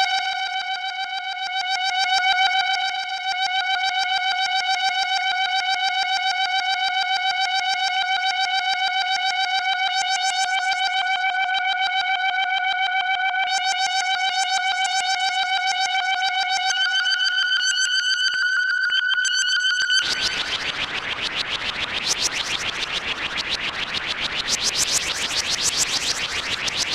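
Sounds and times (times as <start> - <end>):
buzzy synthesizer note: 20.0 - 26.9.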